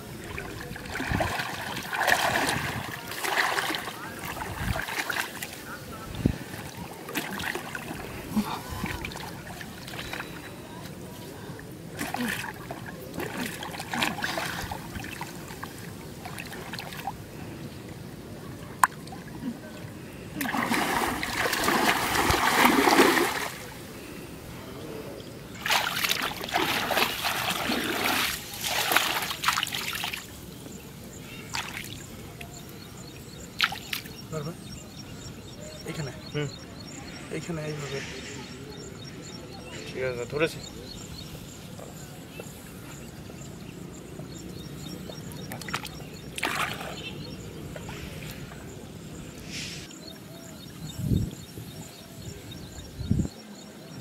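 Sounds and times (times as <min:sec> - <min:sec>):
low background noise: 0:00.0 - 0:54.0
floodwater splashing and sloshing: 0:00.1 - 0:18.0, 0:18.6 - 0:24.1, 0:25.5 - 0:30.5, 0:31.3 - 0:32.6, 0:33.6 - 0:34.2, 0:44.8 - 0:48.8
hands splashing water: 0:00.8 - 0:05.6, 0:20.4 - 0:23.7, 0:25.6 - 0:30.3, 0:45.5 - 0:47.1.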